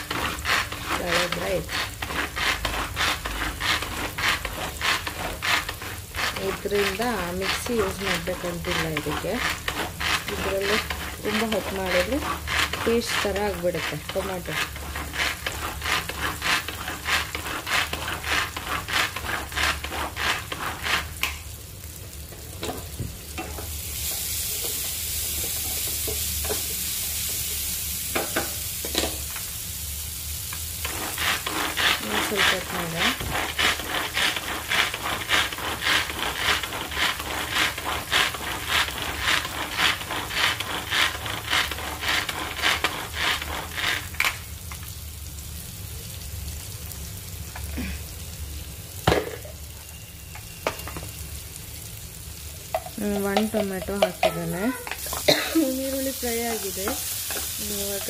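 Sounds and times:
vegetable chopper rattling strokes: 0.0s - 21.3s, 30.8s - 44.4s, 52.9s - 58.0s
steady hiss: 0.0s - 58.0s.

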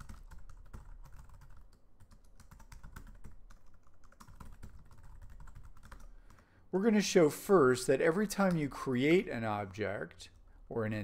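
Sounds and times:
computer keyboard typing: 0.0s - 6.4s.

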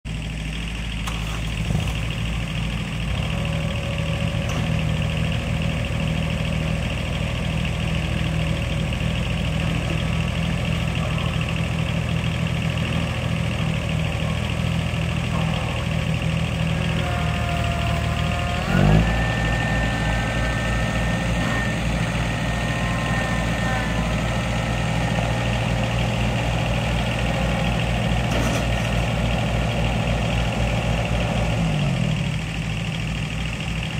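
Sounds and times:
tractor diesel engine running: 0.0s - 33.9s
high engine whine: 0.1s - 33.9s.

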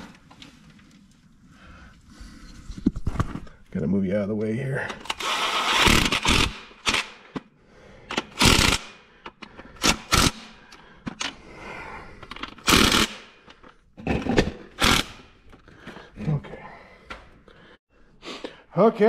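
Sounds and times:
impact wrench bursts: 5.0s - 7.4s, 8.1s - 9.0s, 9.8s - 10.6s, 12.6s - 13.4s, 14.7s - 15.3s.

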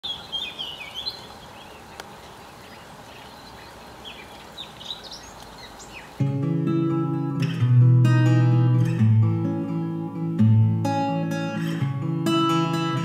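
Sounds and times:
small birds chirping: 0.0s - 6.2s
steady outdoor hiss: 0.0s - 13.0s
acoustic guitar music: 6.2s - 13.0s.

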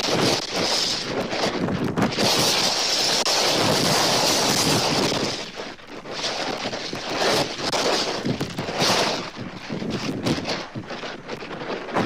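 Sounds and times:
gusty wind buffeting microphone: 0.0s - 12.0s.

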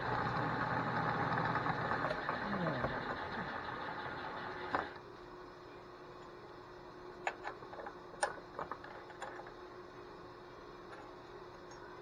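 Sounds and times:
machine motor shutting off: 0.0s - 5.0s
faint steady hum: 0.0s - 12.0s.

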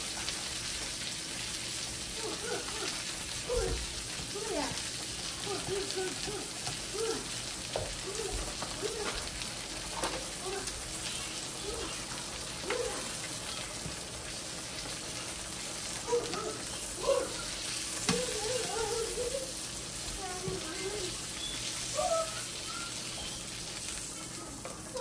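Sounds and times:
chicken sizzling in oil: 0.0s - 25.0s
pot of pasta boiling: 0.0s - 25.0s.

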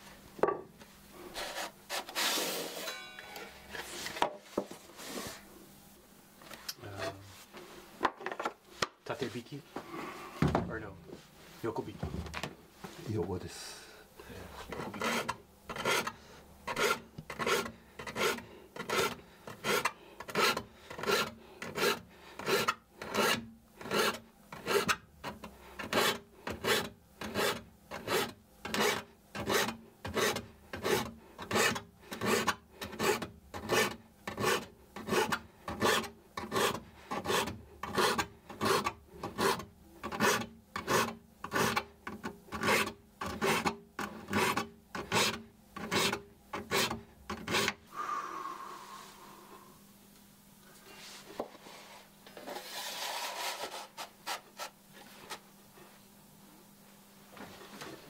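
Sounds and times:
file strokes on saw teeth: 14.7s - 25.0s.

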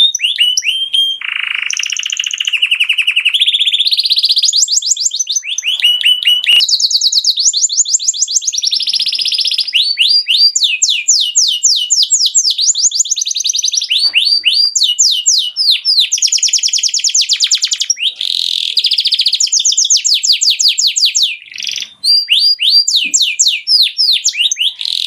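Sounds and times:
canary singing trills: 0.0s - 25.0s.

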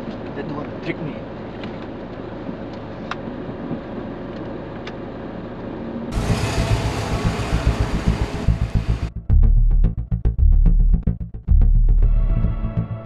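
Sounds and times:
car engine and road noise inside: 0.0s - 9.2s
uneven low rumble outdoors: 0.0s - 13.0s.

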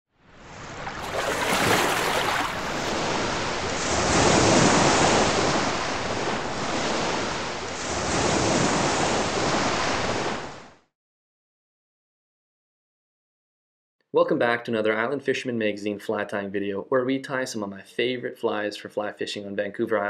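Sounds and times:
ocean waves washing in: 0.2s - 10.8s.

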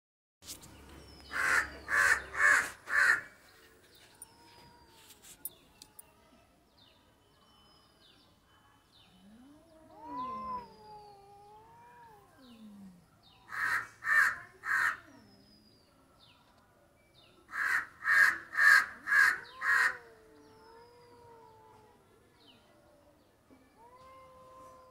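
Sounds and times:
cat meowing: 9.9s - 12.6s, 23.8s - 24.9s
crow cawing: 13.5s - 15.0s, 17.5s - 20.0s.

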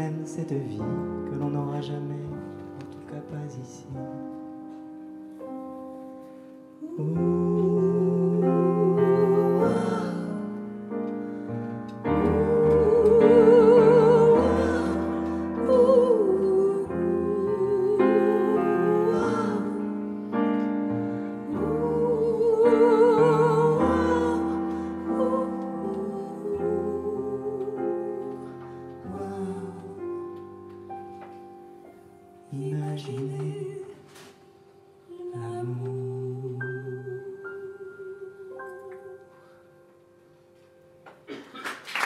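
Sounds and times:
woman and man singing: 0.0s - 4.2s, 6.8s - 10.6s, 12.1s - 20.2s, 21.4s - 30.3s, 32.4s - 34.4s, 35.1s - 39.2s
piano accompaniment: 0.0s - 42.0s.

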